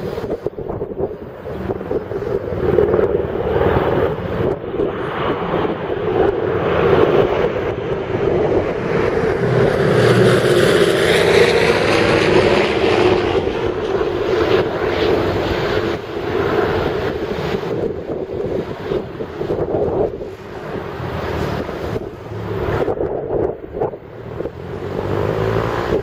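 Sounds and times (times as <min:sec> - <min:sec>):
piston engines droning: 0:00.0 - 0:26.0.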